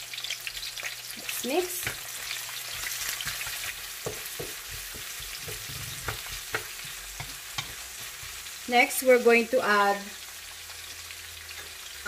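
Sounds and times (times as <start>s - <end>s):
garlic and onions sizzling in oil: 0.0s - 12.0s
utensil knocking and scraping pan: 2.7s - 8.4s.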